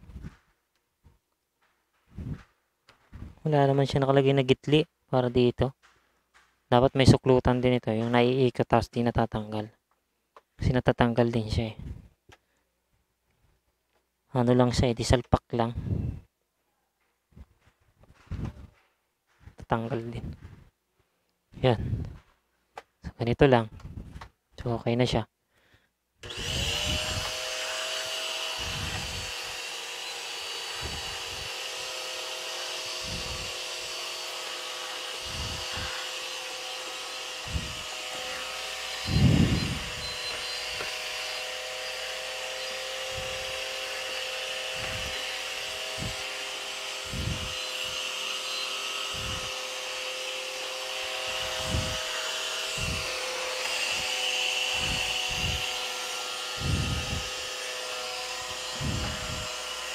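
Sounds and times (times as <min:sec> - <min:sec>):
vacuum cleaner running: 0:26.2 - 0:59.9.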